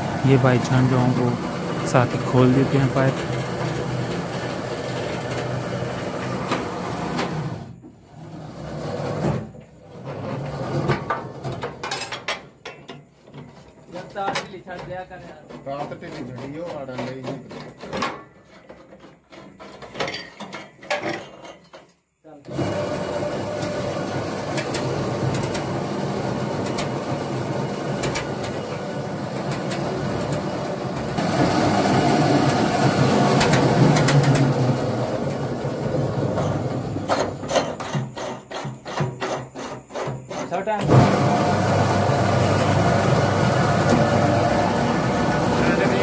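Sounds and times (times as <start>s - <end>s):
drilling rig machinery running: 0.0s - 7.6s, 22.5s - 39.1s, 40.4s - 46.0s
voices: 0.2s - 3.3s
pipe wrenches clanking on pipe: 19.7s - 21.8s.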